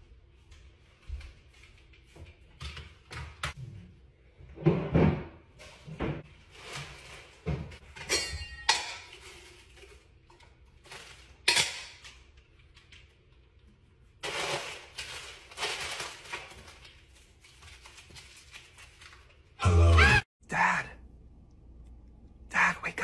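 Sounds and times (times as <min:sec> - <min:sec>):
kitchen cupboards and dishes clattering: 0:01.0 - 0:16.9.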